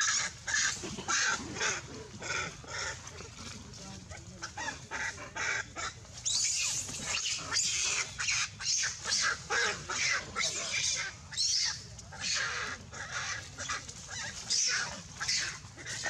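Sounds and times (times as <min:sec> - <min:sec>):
monkeys squealing: 0:06.2 - 0:16.0.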